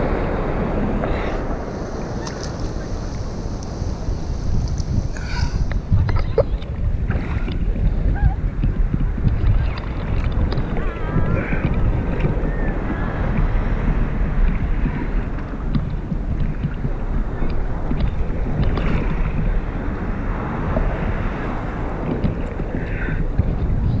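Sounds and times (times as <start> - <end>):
sea water lapping and splashing: 0.0 - 24.0
wind buffeting microphone: 0.0 - 24.0.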